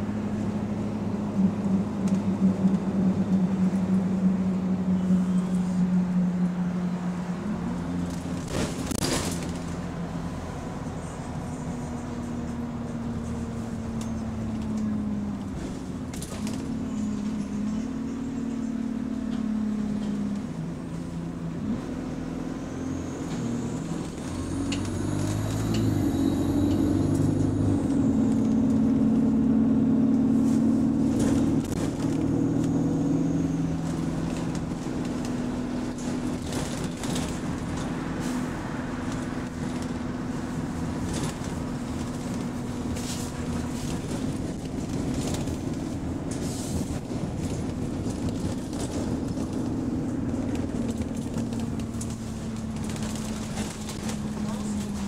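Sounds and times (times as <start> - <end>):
bus engine running: 0.0 - 55.0.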